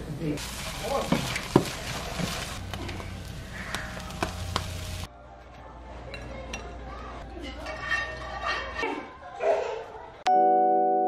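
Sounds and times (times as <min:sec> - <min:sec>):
eggs sizzling in a frying pan: 0:00.1 - 0:05.1
spatula scraping a pan: 0:07.4 - 0:09.0.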